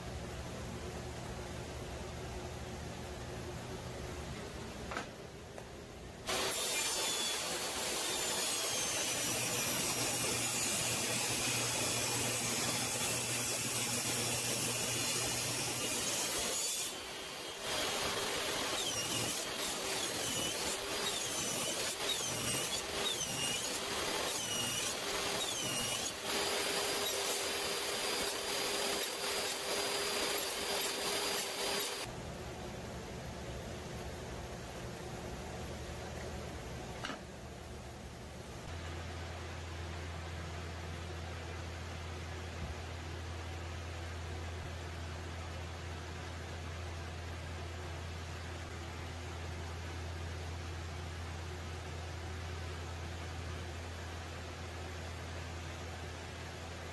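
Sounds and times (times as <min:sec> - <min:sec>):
table saw cutting wood: 0:06.3 - 0:32.1.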